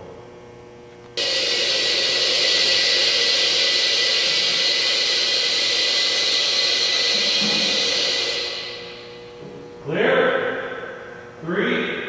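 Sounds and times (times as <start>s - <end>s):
rushing air hiss: 1.2s - 9.1s.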